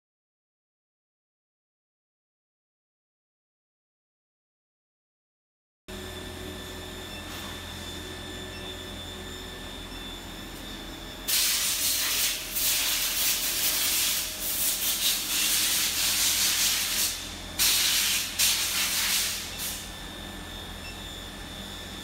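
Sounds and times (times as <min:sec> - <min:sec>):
induction heater whine and hum: 0:05.9 - 0:22.0
loud hiss: 0:11.3 - 0:19.9.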